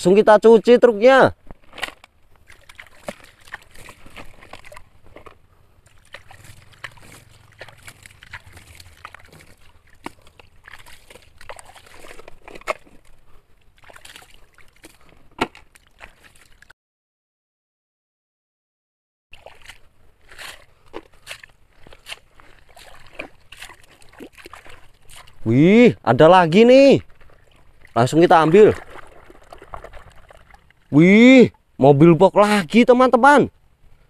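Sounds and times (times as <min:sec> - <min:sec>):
clicks of pebbles and plastic: 0:01.4 - 0:05.4
stream water sloshing and splashing: 0:01.4 - 0:16.7, 0:19.3 - 0:31.8.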